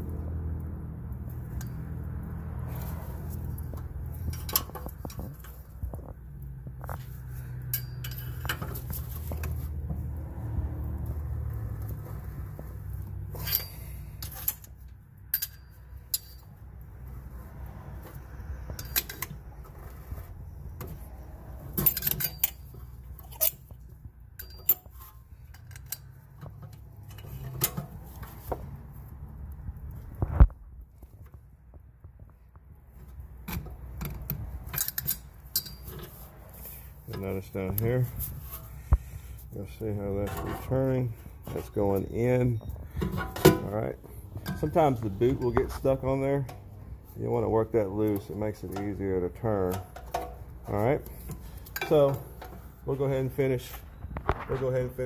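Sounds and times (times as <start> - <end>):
metal tool clicking and clinking: 7.6 - 9.6, 13.3 - 16.5, 18.8 - 19.4, 21.7 - 27.9, 33.5 - 36.1.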